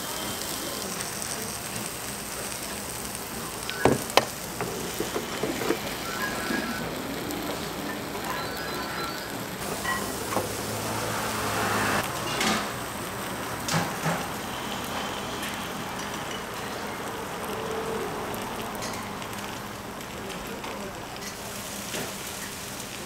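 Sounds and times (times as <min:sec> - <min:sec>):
steady hiss: 0:00.0 - 0:23.0
metal griddle moulds clanking: 0:03.9 - 0:06.7.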